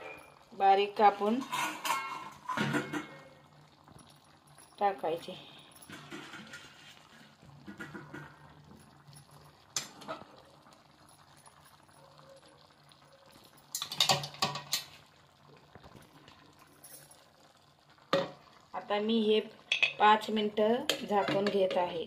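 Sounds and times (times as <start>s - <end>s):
curry simmering in a pan: 0.2s - 22.0s
metal utensils clattering: 1.1s - 3.4s, 5.8s - 8.5s, 9.7s - 10.4s, 13.6s - 15.0s.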